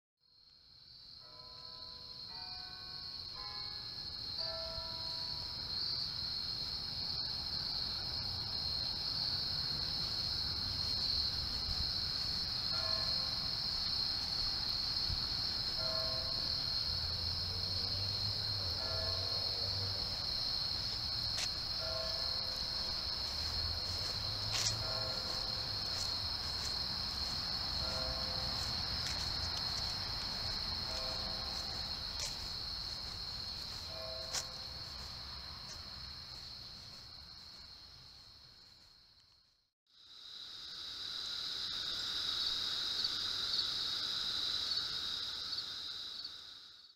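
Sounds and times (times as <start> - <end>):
high-pitched insect trill: 1.0 - 39.3, 40.0 - 46.9.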